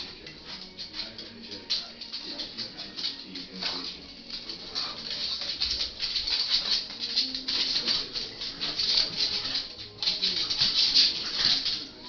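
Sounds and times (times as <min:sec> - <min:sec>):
dog scrabbling at tile floor: 0:00.0 - 0:12.0.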